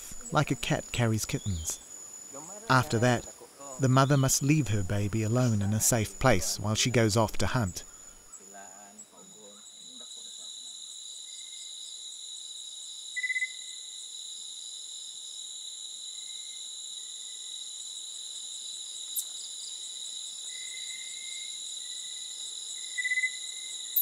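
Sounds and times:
crickets trilling: 0:00.0 - 0:24.0.

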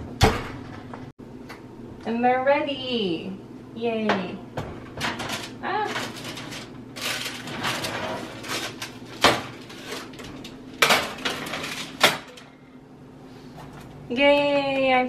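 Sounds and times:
baking sheet rustling and scraping: 0:05.0 - 0:12.4
metal baking sheet clanking: 0:05.0 - 0:12.4.

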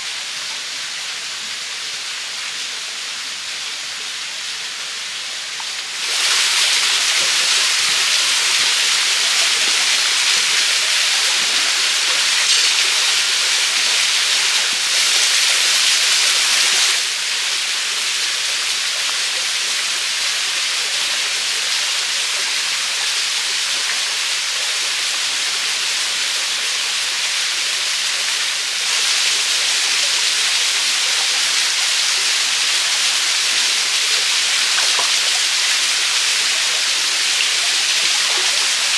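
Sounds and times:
stream and waterfall rushing: 0:00.0 - 0:38.9.

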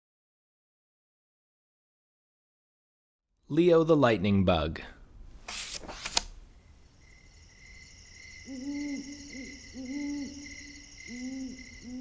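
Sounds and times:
night insects chirring: 0:06.4 - 0:12.0
owl hooting: 0:07.0 - 0:12.0.

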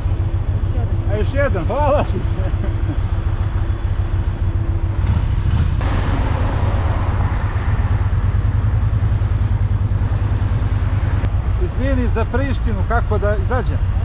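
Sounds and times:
motorcycle engine pulling away: 0:04.9 - 0:09.3.

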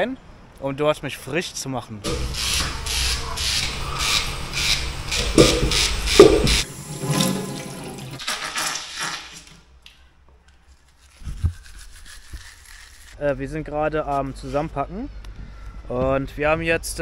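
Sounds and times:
razor scraping stubble: 0:02.1 - 0:06.6, 0:10.8 - 0:13.2
tap running into metal sink: 0:05.3 - 0:07.8
low knock: 0:05.4 - 0:06.6.

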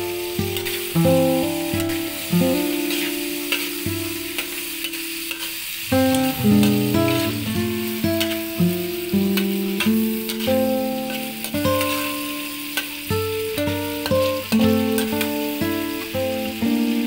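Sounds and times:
meat sizzling in hot oil: 0:00.0 - 0:17.0
plucked instrumental music: 0:00.0 - 0:17.0
stirring scrapes and taps: 0:02.9 - 0:03.8.

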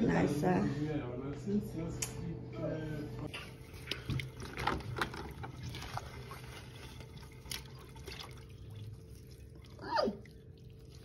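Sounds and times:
water sloshing in a metal sink: 0:03.3 - 0:11.0.

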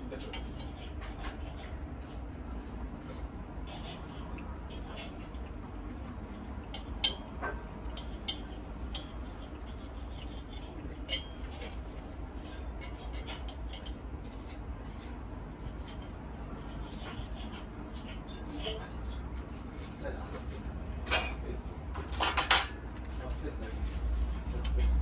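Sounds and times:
cutlery scraping a plate: 0:00.0 - 0:02.2, 0:03.0 - 0:21.4, 0:22.0 - 0:22.8.

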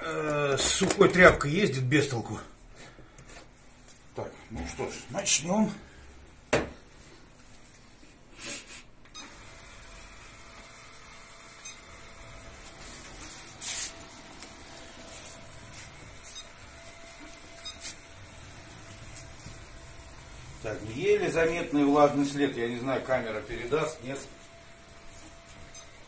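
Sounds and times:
hissy scrapes on floor: 0:12.8 - 0:14.0.

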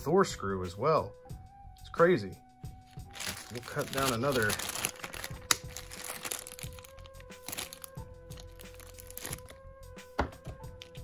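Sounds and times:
background music: 0:00.0 - 0:11.0
plastic bag crinkling: 0:02.9 - 0:09.6.

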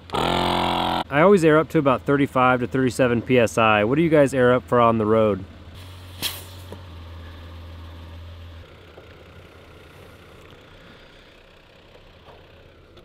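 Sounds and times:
air compressor humming: 0:00.0 - 0:01.1.

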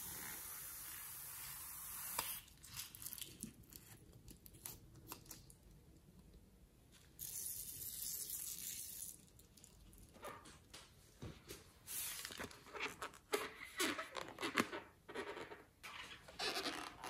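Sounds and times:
steady hiss: 0:00.0 - 0:02.4
fingers handling rubber balloon: 0:12.4 - 0:17.0.

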